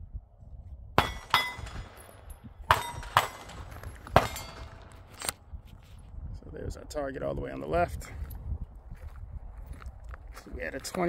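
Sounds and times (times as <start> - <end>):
pistol shots: 1.0 - 5.3.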